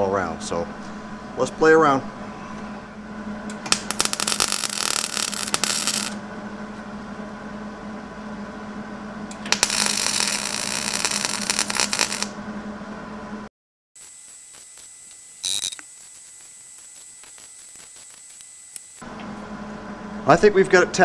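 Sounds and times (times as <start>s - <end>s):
low hum: 0.1s - 20.6s
welding arc crackling: 3.6s - 6.2s, 9.3s - 12.4s, 14.0s - 19.0s.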